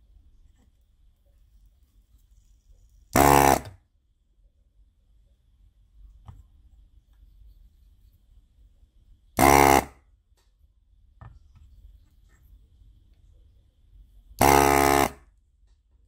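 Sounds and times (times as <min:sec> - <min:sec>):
electronic buzzer beep: 0:03.2 - 0:03.8, 0:09.4 - 0:10.0, 0:14.4 - 0:15.2.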